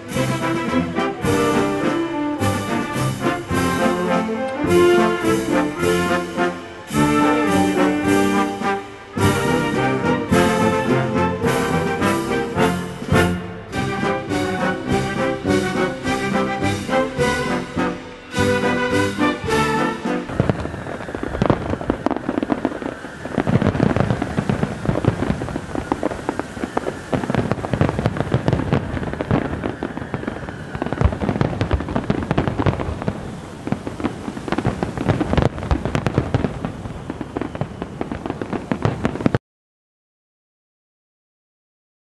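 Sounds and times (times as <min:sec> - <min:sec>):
band music: 0:00.0 - 0:20.7
fireworks bangs and crackling: 0:00.0 - 0:39.4.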